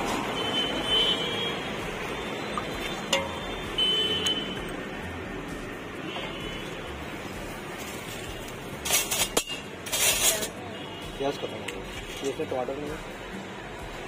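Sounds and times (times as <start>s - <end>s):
street stall noise: 0.0s - 14.0s
steel ladle knocking against pot: 3.1s - 3.4s.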